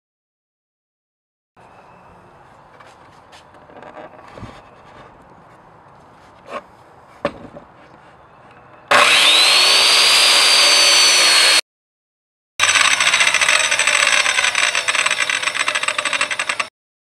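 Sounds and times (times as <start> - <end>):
circular saw motor whine: 8.9 - 11.6, 12.6 - 16.7
saw cutting through board: 8.9 - 11.6, 12.6 - 16.7.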